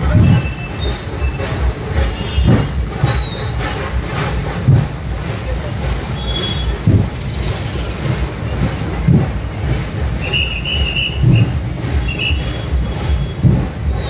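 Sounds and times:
vehicle engine idling: 0:00.0 - 0:14.0
dull thumps: 0:06.8 - 0:07.2.

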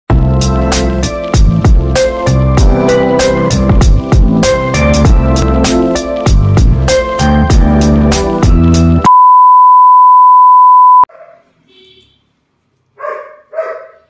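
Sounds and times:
upbeat intro music: 0:00.1 - 0:09.1
steady test-tone beep: 0:09.1 - 0:11.1
small dogs barking: 0:11.1 - 0:11.5, 0:13.0 - 0:14.0.

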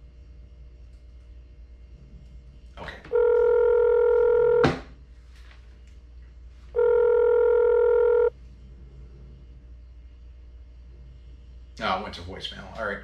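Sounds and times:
telephone ringback tone: 0:03.1 - 0:04.7, 0:06.8 - 0:08.3.

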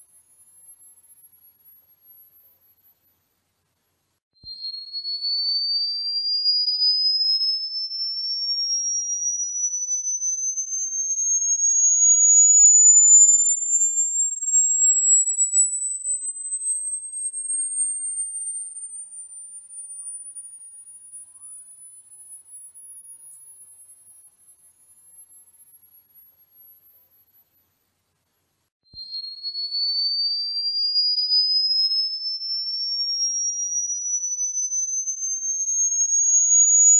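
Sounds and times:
rising electronic sine tone: 0:31.0 - 0:36.9.

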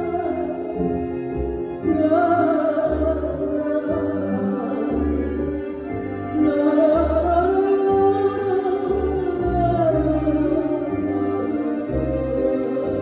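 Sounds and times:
bass line: 0:00.0 - 0:13.0
instrumental accompaniment: 0:00.0 - 0:13.0
woman singing slow song: 0:01.8 - 0:05.4, 0:06.3 - 0:11.0.

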